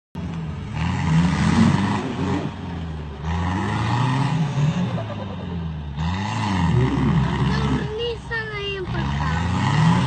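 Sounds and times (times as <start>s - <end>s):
tyres churning through mud: 0.2s - 10.0s
engine revving hard: 0.7s - 10.0s.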